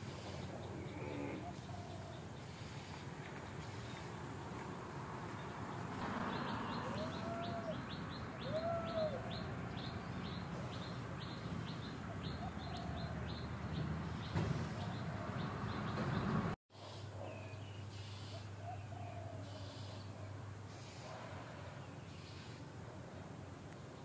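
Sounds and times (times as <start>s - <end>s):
bird cooing: 0.2s - 2.4s, 6.4s - 9.9s, 12.1s - 13.4s, 18.6s - 20.9s
bird chirping: 5.4s - 16.5s.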